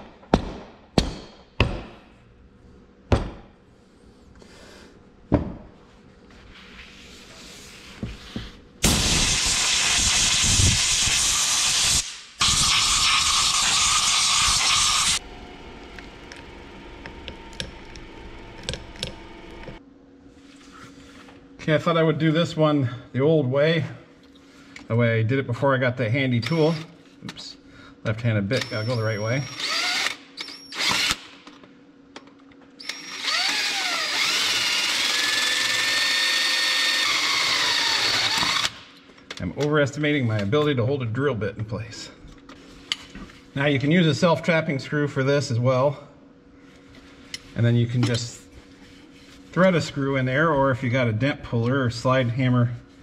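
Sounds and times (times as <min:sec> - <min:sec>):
air spray gun hissing: 0:08.9 - 0:15.2
power drill boring into metal: 0:12.4 - 0:15.2, 0:32.8 - 0:38.8.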